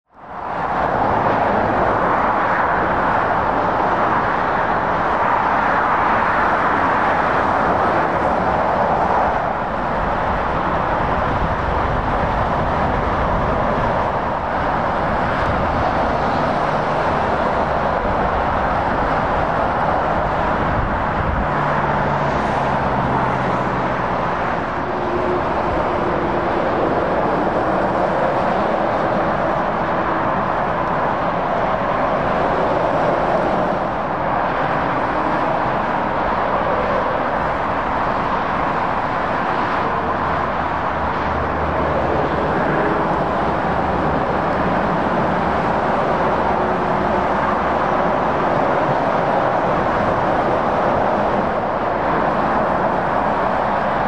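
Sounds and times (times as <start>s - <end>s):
motorway traffic: 0.0s - 54.0s
low engine hum of passing vehicle: 0.2s - 54.0s.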